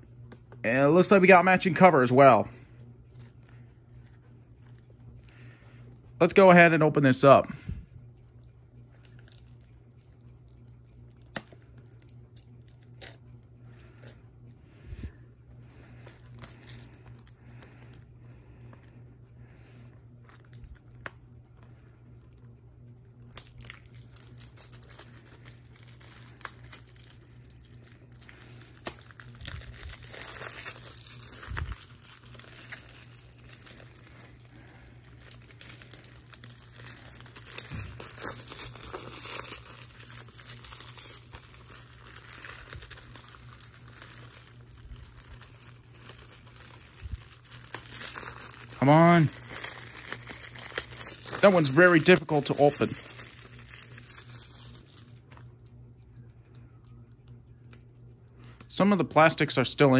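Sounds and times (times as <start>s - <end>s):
plastic wrap crinkling and tearing: 2.7s - 6.3s, 8.0s - 14.6s, 15.6s - 58.7s
scissors snipping shrink wrap: 9.0s - 14.6s, 20.0s - 55.6s.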